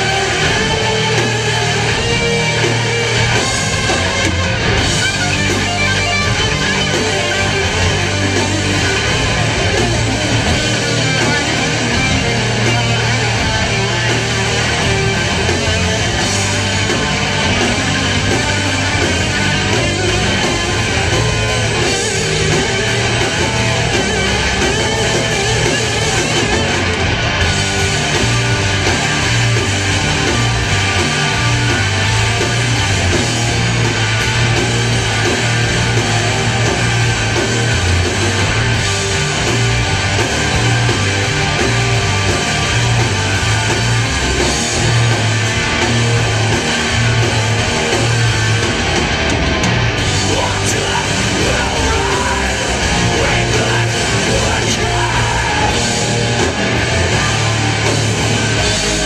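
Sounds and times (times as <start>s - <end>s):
electric guitars: 0.0s - 59.0s
heavy metal band playing live: 0.0s - 59.0s
pulsing bass: 0.0s - 59.0s.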